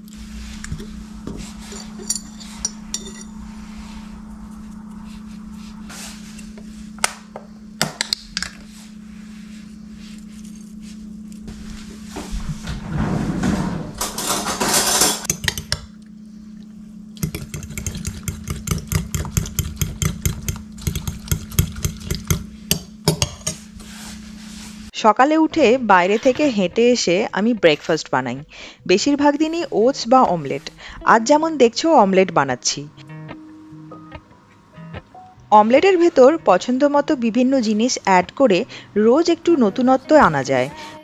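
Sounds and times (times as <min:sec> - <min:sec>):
steady low hum: 0:00.0 - 0:41.0
spoon clinking glass jar: 0:01.7 - 0:03.3
fork beating eggs in bowl: 0:15.2 - 0:16.1, 0:17.2 - 0:23.7.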